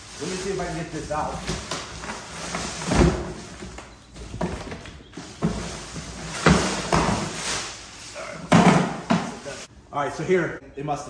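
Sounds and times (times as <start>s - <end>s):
rummaging in cardboard box: 0.0s - 9.7s
knocks and thumps: 8.5s - 9.4s.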